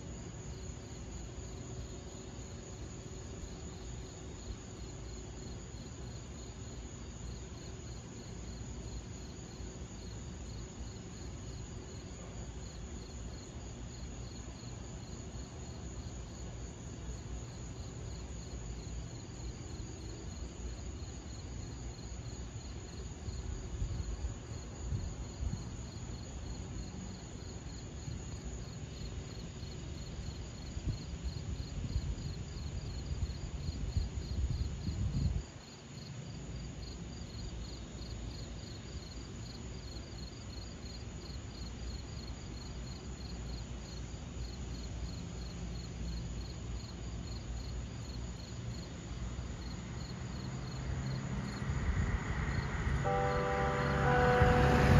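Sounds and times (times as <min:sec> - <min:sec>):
crickets chirping: 0:00.0 - 0:54.9
low outdoor rumble: 0:48.6 - 0:54.9.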